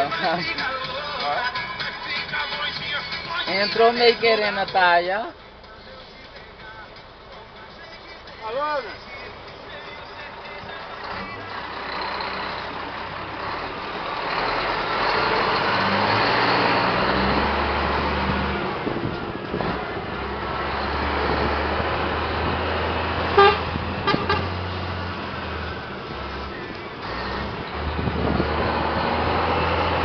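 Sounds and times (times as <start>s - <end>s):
truck diesel engine changing gear: 0.0s - 30.0s
truck horn toots: 23.3s - 24.6s.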